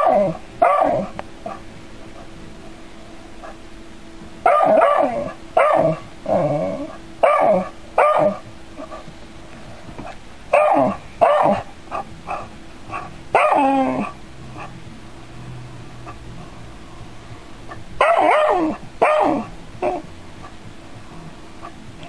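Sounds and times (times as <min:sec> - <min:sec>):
dog barking and yipping: 0:00.0 - 0:02.3, 0:04.4 - 0:09.0, 0:10.5 - 0:14.7, 0:17.7 - 0:20.6.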